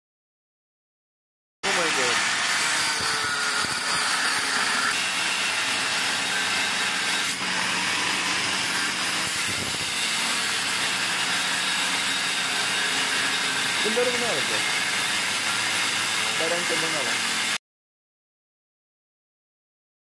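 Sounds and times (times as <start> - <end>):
angle grinder cutting steel: 1.6 - 17.6.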